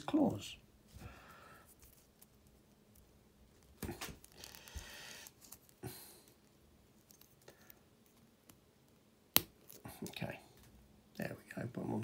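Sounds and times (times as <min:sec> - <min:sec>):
soft rustle: 0:00.8 - 0:08.3.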